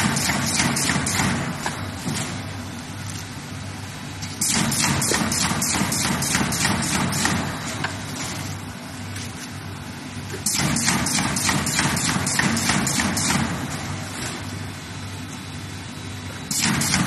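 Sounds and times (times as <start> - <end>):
fast mechanical knocks: 0.0 - 2.4, 4.4 - 8.4, 10.4 - 13.9, 16.5 - 17.0.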